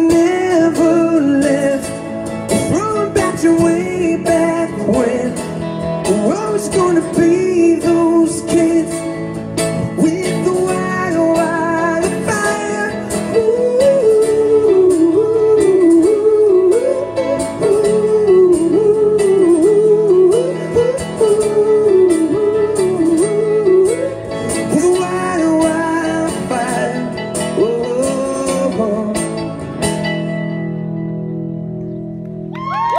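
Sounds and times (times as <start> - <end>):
man singing: 0.0 - 30.1
acoustic guitar strumming: 0.0 - 32.5.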